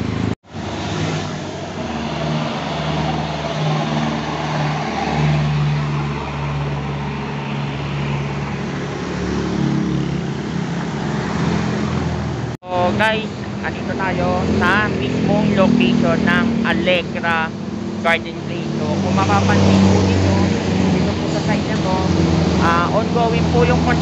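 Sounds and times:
road traffic passing: 0:00.0 - 0:24.0
truck engine humming: 0:12.2 - 0:24.0.

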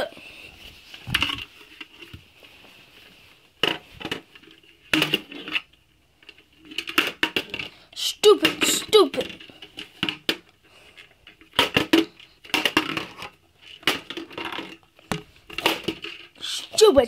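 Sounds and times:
handling knocks and clicks: 0:08.4 - 0:16.4.

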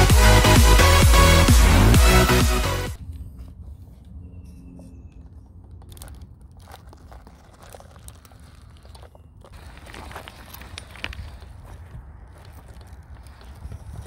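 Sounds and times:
rc car crunching over rocks: 0:05.7 - 0:14.0.

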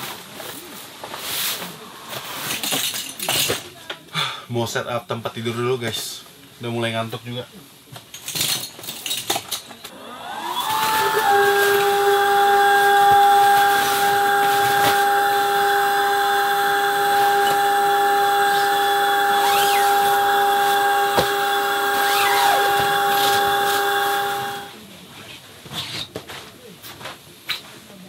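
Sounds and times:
electric air pump whining: 0:09.9 - 0:24.8.

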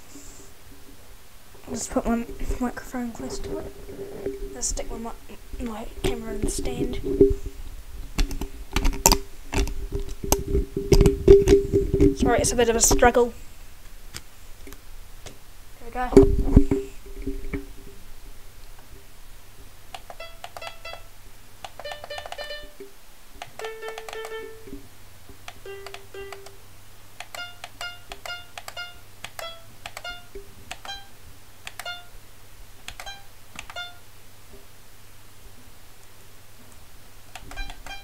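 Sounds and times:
computer keyboard tapping: 0:19.9 - 0:22.8, 0:23.4 - 0:24.8, 0:25.4 - 0:26.6, 0:27.2 - 0:32.1, 0:32.9 - 0:34.0, 0:37.3 - 0:38.0
short electronic notes: 0:20.2 - 0:21.2, 0:21.8 - 0:22.8, 0:31.8 - 0:32.2, 0:33.0 - 0:34.1.

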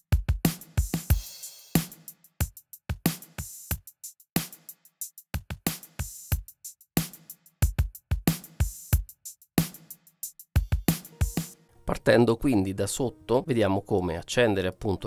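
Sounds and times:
drum kit groove: 0:00.0 - 0:11.7.

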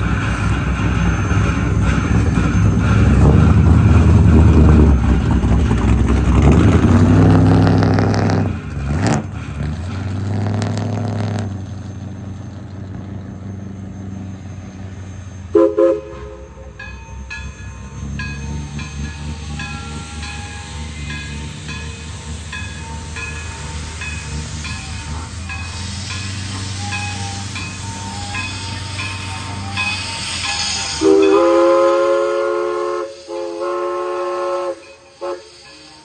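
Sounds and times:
steam locomotive low rumble: 0:00.0 - 0:36.0
locomotive bell ringing: 0:13.4 - 0:32.0, 0:34.5 - 0:36.0
steam whistle toots: 0:15.3 - 0:16.8, 0:25.0 - 0:36.0.

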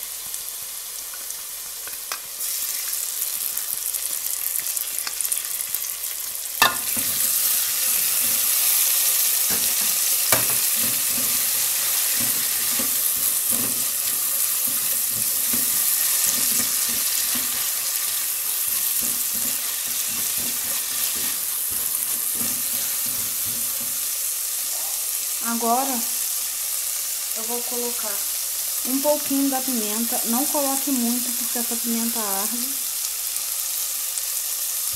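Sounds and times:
sauce sizzling in a pan: 0:00.0 - 0:34.9
spatula stirring in metal pan: 0:06.6 - 0:24.4.

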